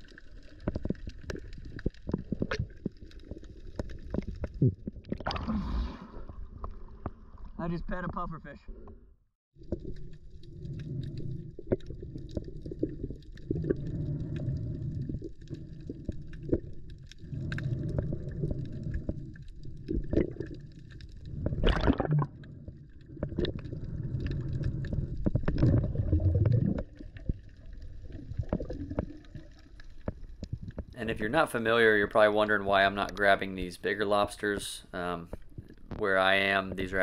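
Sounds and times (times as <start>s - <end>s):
burst of bubbles: 0.0s - 7.5s, 21.3s - 22.5s, 23.1s - 29.7s
muffled underwater gurgling: 21.3s - 29.3s.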